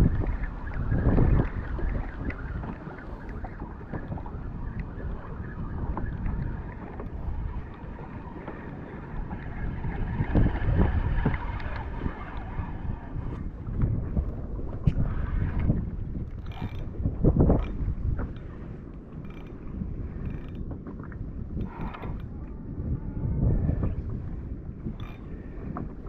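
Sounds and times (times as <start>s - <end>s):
water lapping against hull: 0.0s - 26.0s
wind buffeting microphone: 0.0s - 26.0s
faint ticks: 17.5s - 19.6s, 20.2s - 20.7s, 24.9s - 25.9s.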